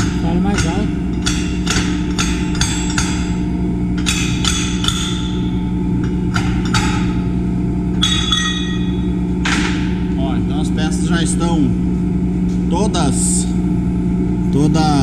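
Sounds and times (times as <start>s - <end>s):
metallic knocks on steel plates: 0.0s - 3.4s, 4.0s - 7.3s, 8.0s - 10.0s
low hum: 0.0s - 15.0s.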